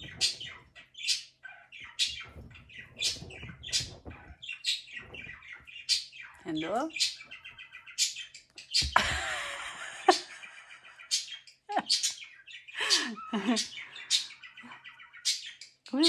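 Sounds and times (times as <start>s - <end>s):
budgerigar chirping and chattering: 0.0s - 9.0s, 10.2s - 16.0s
rustling: 1.8s - 5.9s.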